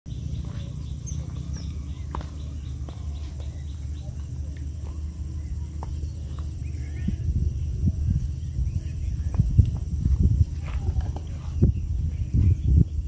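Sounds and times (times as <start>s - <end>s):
faint bird chirps: 0.1s - 9.7s
low rumble: 0.1s - 13.0s.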